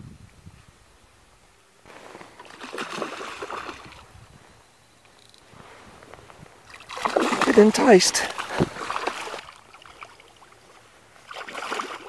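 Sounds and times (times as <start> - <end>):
water splashing and sloshing: 1.9 - 4.2, 5.5 - 12.0.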